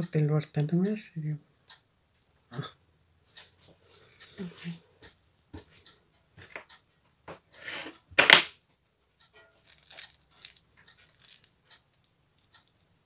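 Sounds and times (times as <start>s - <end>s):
cabbage leaves tearing: 9.6s - 11.5s.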